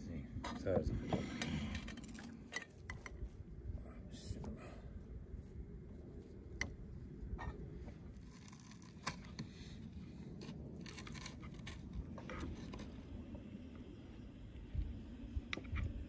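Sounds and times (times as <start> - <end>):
flatbread tearing: 8.1 - 9.4, 10.6 - 13.0.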